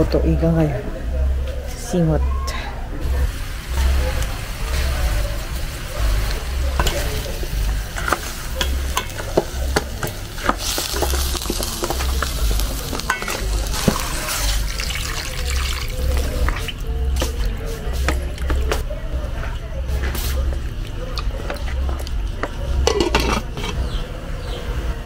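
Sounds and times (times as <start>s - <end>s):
meat sizzling in a pot: 3.4s - 16.8s
water pouring: 13.7s - 16.8s.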